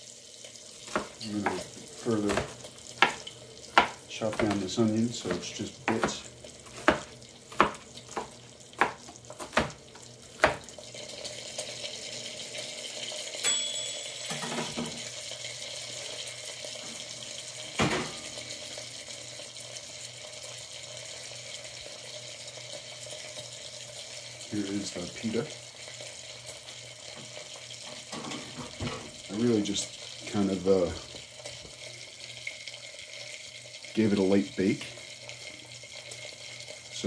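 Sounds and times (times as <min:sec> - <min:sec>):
bacon sizzling in a pan: 0:00.0 - 0:37.0
knife chopping on cutting board: 0:00.8 - 0:10.7.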